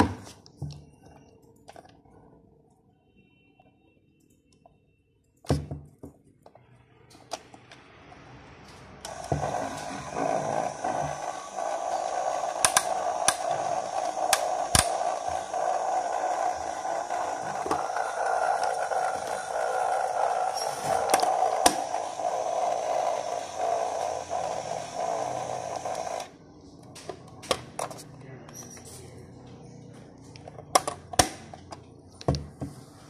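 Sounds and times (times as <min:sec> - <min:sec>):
toy motor whirring hum: 0:09.1 - 0:26.4.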